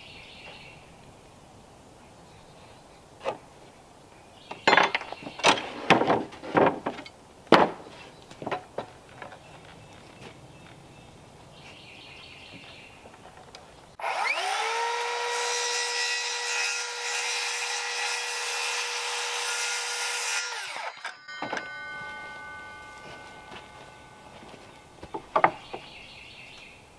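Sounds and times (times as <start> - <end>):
circular saw cutting wood: 14.0 - 24.8.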